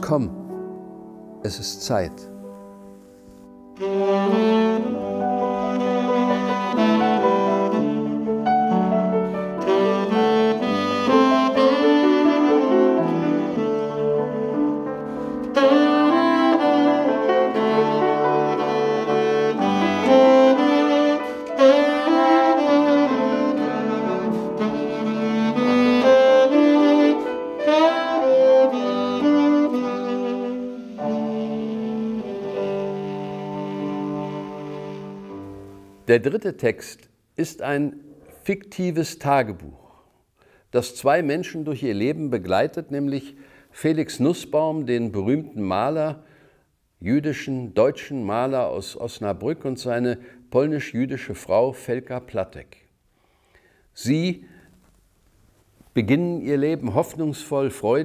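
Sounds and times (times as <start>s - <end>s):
piano: 0.0s - 36.3s
tenor saxophone melody: 2.2s - 36.1s
trombone: 3.8s - 36.0s.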